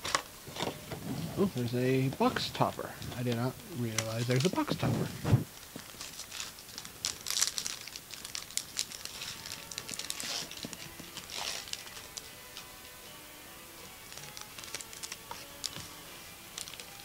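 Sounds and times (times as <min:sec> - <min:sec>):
plastic wrapper crinkling and tearing: 0:02.3 - 0:12.7, 0:14.0 - 0:17.0.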